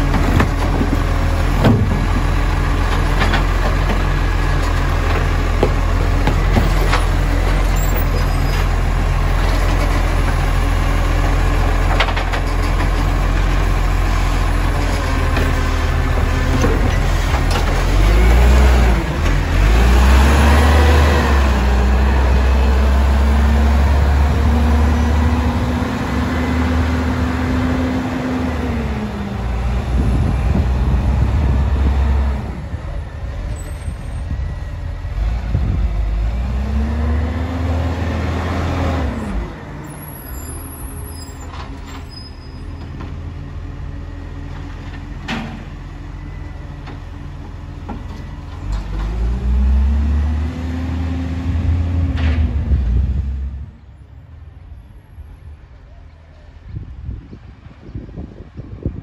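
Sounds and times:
garbage truck diesel engine revving: 0.0 - 33.6, 34.4 - 40.5, 48.6 - 53.8.

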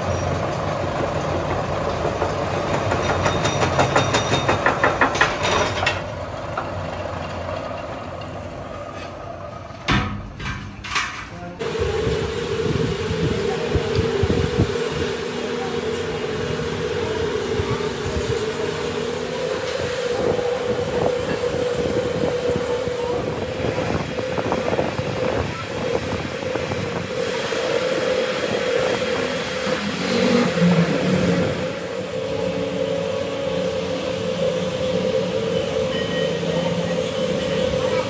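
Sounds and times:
workshop machinery humming: 11.4 - 38.0.

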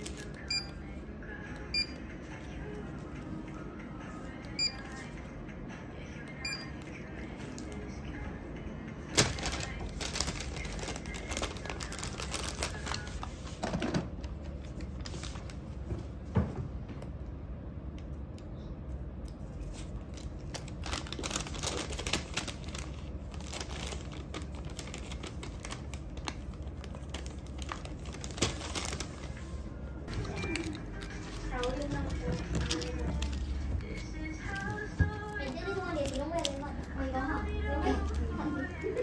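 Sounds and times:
paper bag rustling and creasing: 9.2 - 13.6, 20.4 - 36.8.

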